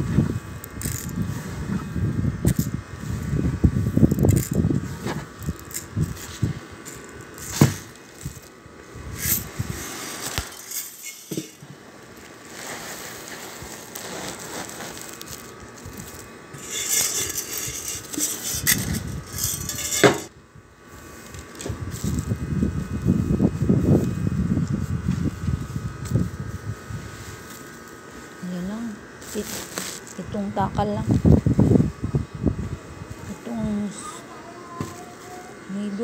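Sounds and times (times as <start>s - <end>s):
dry grains rattling and rustling: 0.2s - 1.6s, 2.4s - 20.3s, 21.0s - 23.2s, 24.8s - 30.4s
grains against a tin can: 0.6s - 1.3s, 2.4s - 3.3s, 4.0s - 20.3s, 21.2s - 22.4s, 29.2s - 30.3s.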